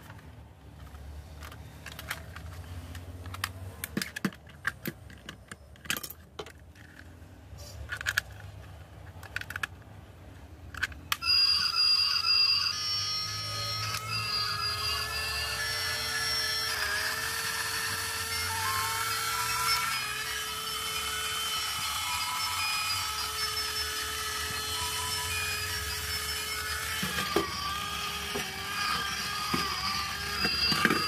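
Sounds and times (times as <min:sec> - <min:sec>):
plastic toy clicks and knocks: 0:00.0 - 0:07.2, 0:07.8 - 0:10.0, 0:10.6 - 0:11.6, 0:25.7 - 0:31.0
tinny electronic tune: 0:11.2 - 0:16.7.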